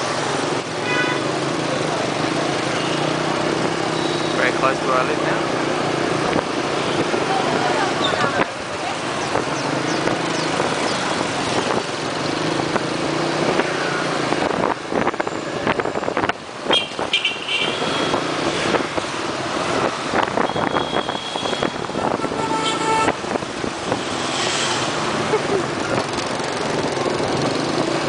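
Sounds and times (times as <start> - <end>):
motorbike engine and road noise: 0.0 - 28.0.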